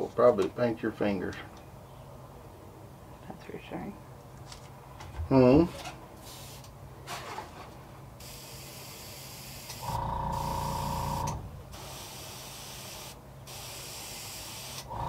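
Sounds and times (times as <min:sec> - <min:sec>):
airbrush hissing air: 0:08.2 - 0:14.9
small motor humming: 0:09.8 - 0:11.5, 0:14.8 - 0:15.0.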